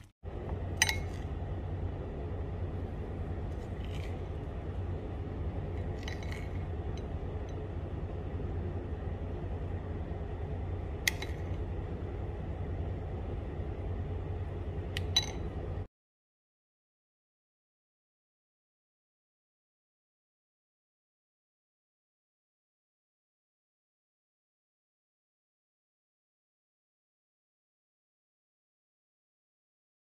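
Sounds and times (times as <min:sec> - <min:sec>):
steady low hum: 0:00.0 - 0:15.9
metal spoon clinking glass bowl: 0:00.8 - 0:01.3, 0:15.0 - 0:15.6.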